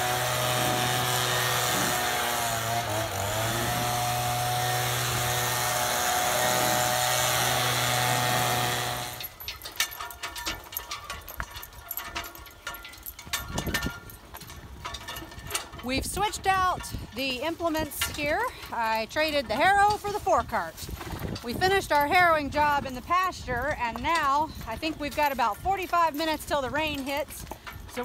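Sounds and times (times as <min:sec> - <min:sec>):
leaf blower running: 0:00.0 - 0:09.4
harness clinks of walking horses: 0:00.0 - 0:28.0.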